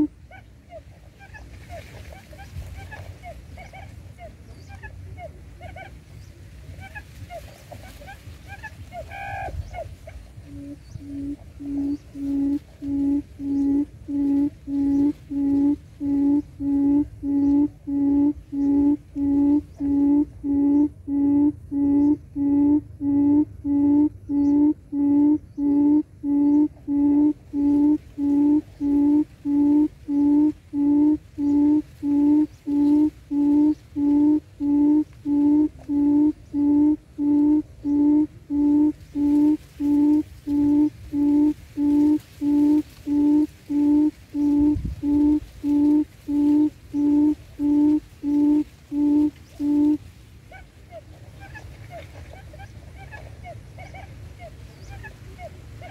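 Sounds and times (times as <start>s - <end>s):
quail decoy call hooting: 0.0s - 6.0s, 6.7s - 55.9s.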